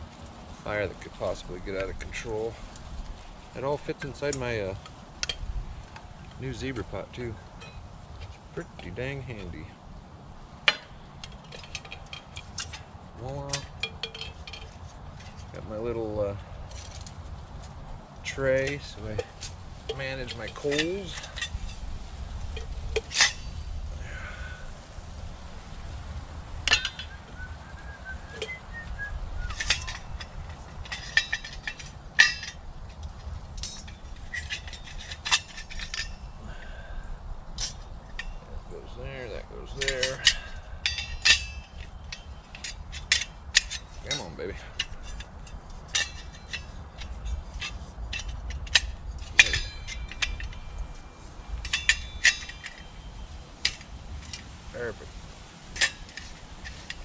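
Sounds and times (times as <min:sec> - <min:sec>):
metal pot and stove parts clanking: 0:07.5 - 0:07.8, 0:10.7 - 0:15.6, 0:18.2 - 0:21.8, 0:22.5 - 0:23.7, 0:26.6 - 0:27.2, 0:29.4 - 0:36.8, 0:37.5 - 0:57.0.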